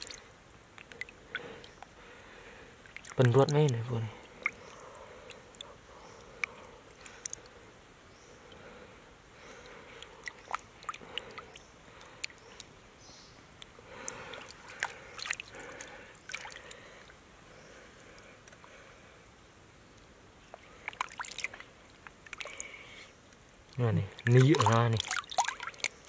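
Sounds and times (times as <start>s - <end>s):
water splashing and dripping: 0.0s - 2.2s, 2.8s - 7.6s, 9.6s - 12.7s, 13.6s - 17.1s, 20.5s - 22.8s, 23.6s - 26.0s.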